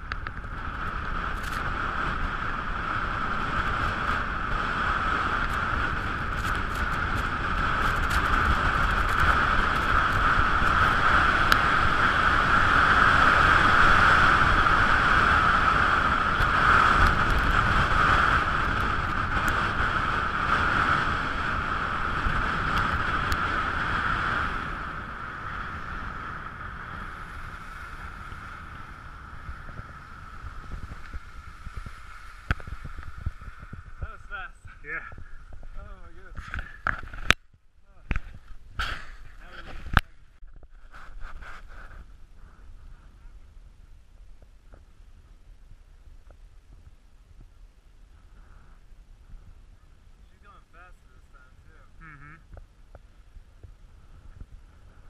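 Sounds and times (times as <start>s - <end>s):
wind rushing over microphone: 0.0s - 55.0s
skis sliding on packed snow: 0.6s - 34.9s, 40.7s - 43.2s.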